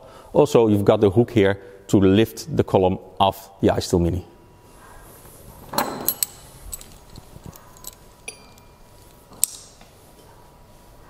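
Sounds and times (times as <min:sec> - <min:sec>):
metal fittings clinking: 0:05.6 - 0:09.8.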